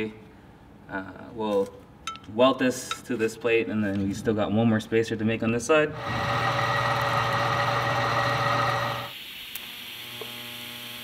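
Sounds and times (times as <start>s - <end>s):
drill press cutting steel: 5.9s - 9.1s
electric welding arc buzzing: 6.0s - 11.0s.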